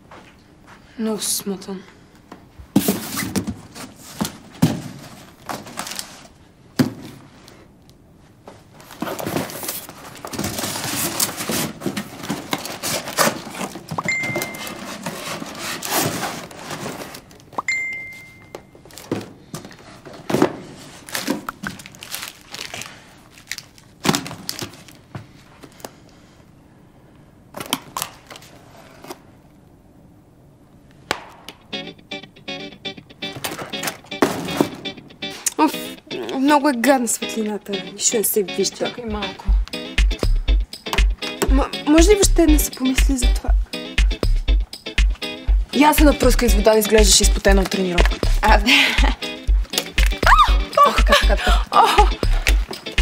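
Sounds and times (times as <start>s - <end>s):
cardboard and packing rustling: 2.7s - 7.3s, 8.3s - 17.5s, 18.8s - 26.1s
phone beeps: 14.0s - 14.8s, 17.6s - 18.7s.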